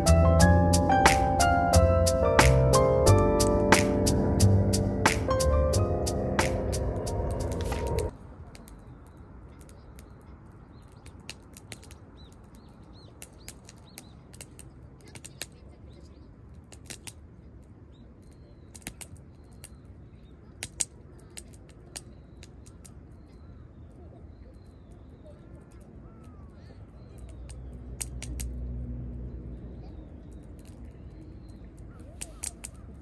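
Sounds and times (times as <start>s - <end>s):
low steady rumble: 0.0s - 8.1s
wood fire crackling: 6.3s - 8.8s
faint bird chirps: 17.9s - 27.9s.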